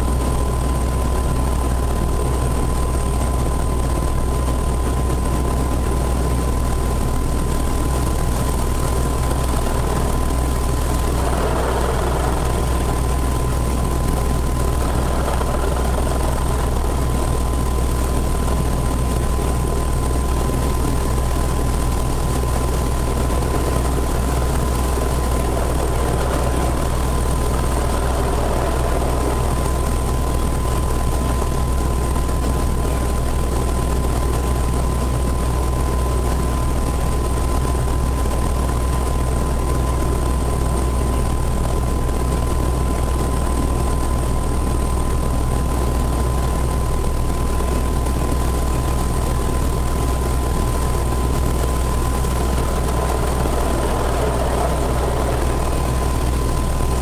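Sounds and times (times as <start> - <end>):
helicopter engine and rotor drone: 0.0 - 57.0
high-pitched whines: 51.0 - 57.0.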